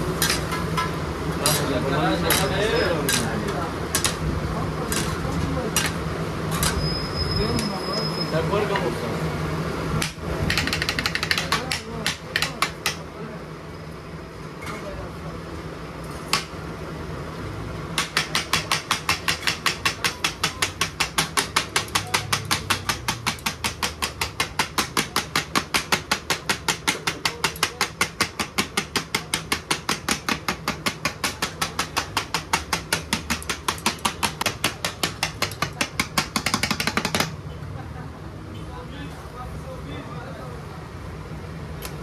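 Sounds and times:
fast chopping strikes: 10.0 - 13.0, 18.0 - 37.4.

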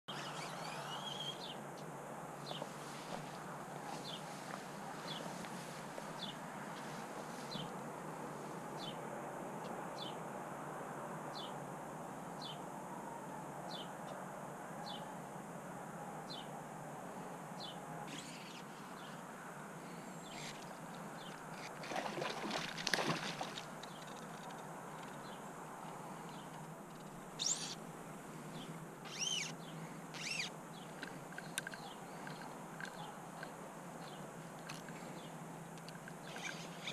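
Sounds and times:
songbirds calling: 0.1 - 7.8, 17.6 - 36.9
rustle: 0.1 - 9.0, 17.2 - 36.9.

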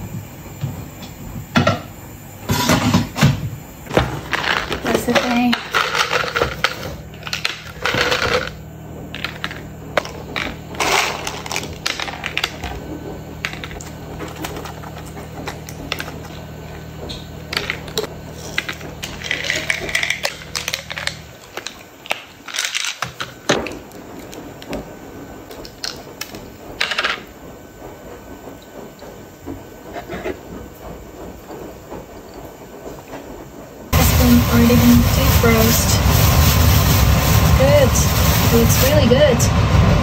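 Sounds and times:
low steady hum: 33.9 - 40.0.

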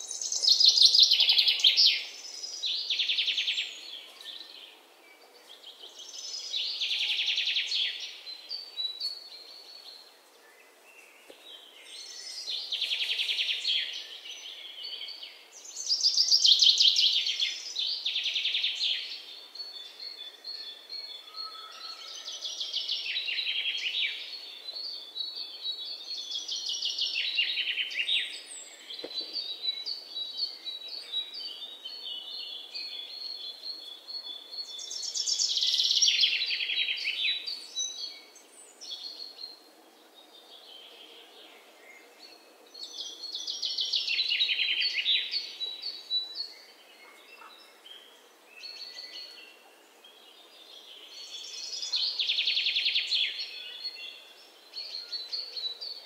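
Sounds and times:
faint bird chirps: 0.0 - 39.7.

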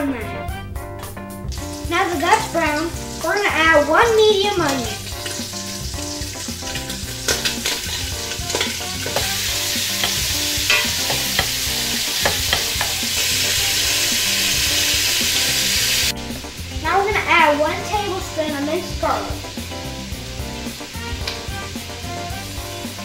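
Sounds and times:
onion sizzling in oil: 1.4 - 23.0
spoon scraping pot: 7.3 - 13.4.

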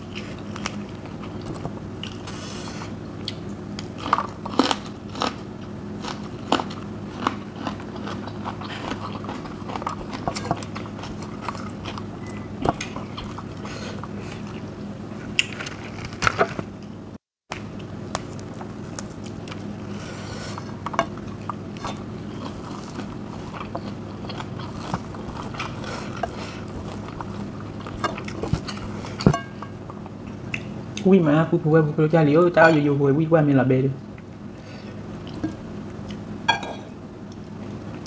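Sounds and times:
steady low hum: 0.0 - 38.0
chewing and biting food: 3.2 - 16.6, 20.5 - 29.3.

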